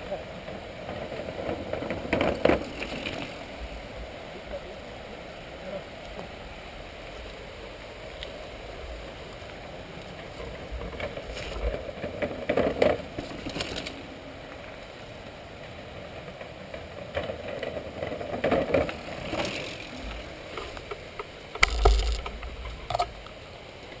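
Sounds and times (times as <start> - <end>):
bike tyres rolling on trail: 0.0 - 24.0
bike rattling and knocking: 20.6 - 23.1.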